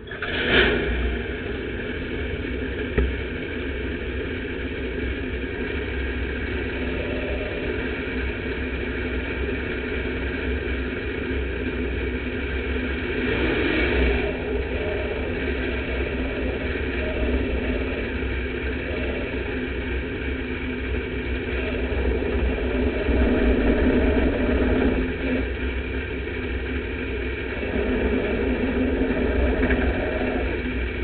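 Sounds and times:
race car engine from cockpit: 0:00.0 - 0:31.0.

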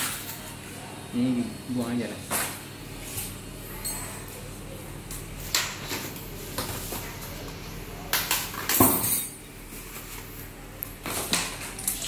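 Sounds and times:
metal bike parts clinking: 0:08.5 - 0:09.4.

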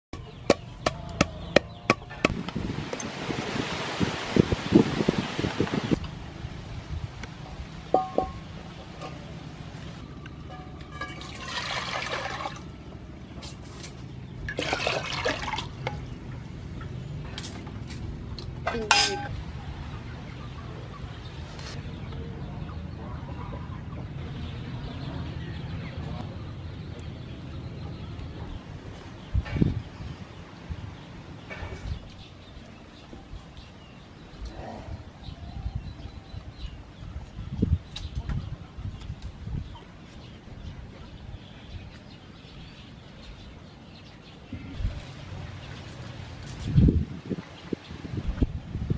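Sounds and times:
chickens clucking: 0:00.2 - 0:02.3, 0:19.8 - 0:25.3.

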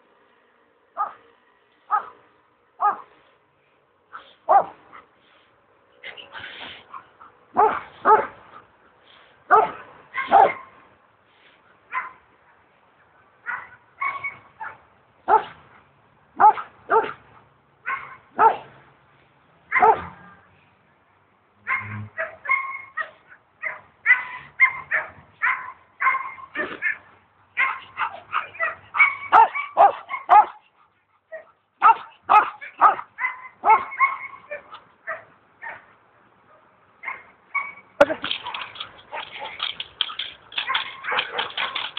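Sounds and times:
dog barking and yipping: 0:01.0 - 0:01.2, 0:01.9 - 0:02.2, 0:02.8 - 0:03.2, 0:04.2 - 0:05.0, 0:06.9 - 0:08.4, 0:09.5 - 0:10.8, 0:11.9 - 0:12.2, 0:13.4 - 0:15.6, 0:16.4 - 0:17.2, 0:17.8 - 0:18.7, 0:19.7 - 0:20.2, 0:21.6 - 0:35.9, 0:37.0 - 0:41.9.

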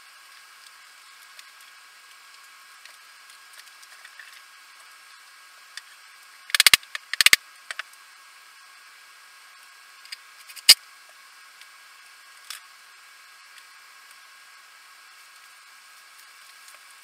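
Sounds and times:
faint steady hiss: 0:00.0 - 0:17.0
sharp clicks and taps: 0:06.5 - 0:07.8.

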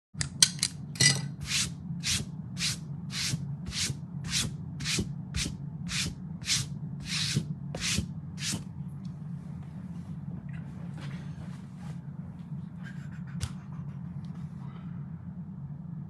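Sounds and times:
low steady hum: 0:00.2 - 0:16.0
rhythmic rubbing strokes: 0:01.4 - 0:08.6.

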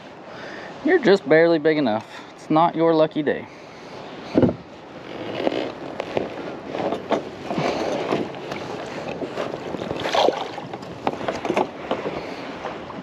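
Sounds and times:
water splashing and sloshing: 0:03.6 - 0:13.0.

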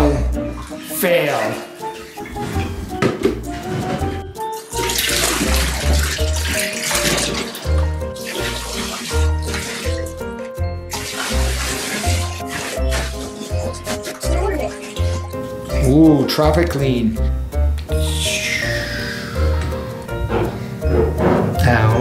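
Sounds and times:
background music with steady beat: 0:00.0 - 0:22.0
water splashing from bucket: 0:03.8 - 0:16.2.

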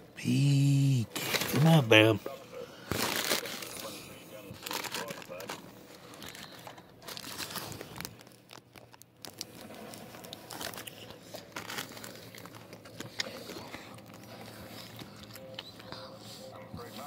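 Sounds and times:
paper wrapper crinkling: 0:01.1 - 0:02.1, 0:02.8 - 0:04.0, 0:04.6 - 0:15.7.

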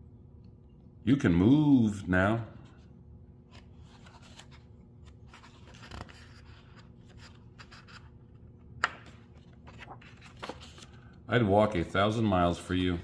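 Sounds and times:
faint steady hum: 0:00.0 - 0:13.0
book pages rustling: 0:03.4 - 0:11.1.

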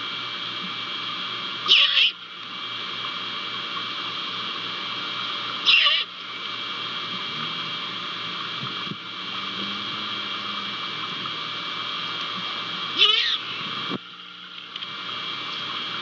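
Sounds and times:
background hiss: 0:00.0 - 0:16.0
owl screech: 0:01.7 - 0:02.2, 0:05.6 - 0:06.1, 0:13.0 - 0:13.4.

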